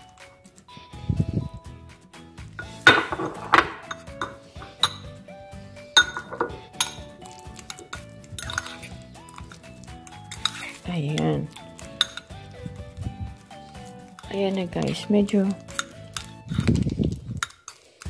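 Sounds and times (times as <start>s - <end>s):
fork clinking on ceramic bowl: 3.8s - 5.1s, 6.0s - 9.6s, 10.2s - 10.8s, 11.8s - 12.4s.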